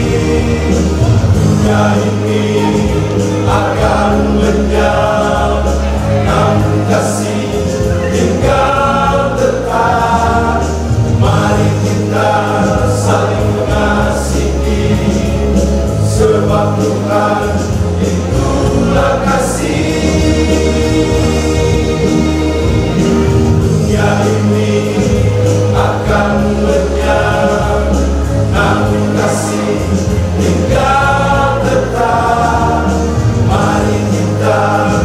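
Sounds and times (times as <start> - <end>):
church choir singing: 0.0 - 35.0.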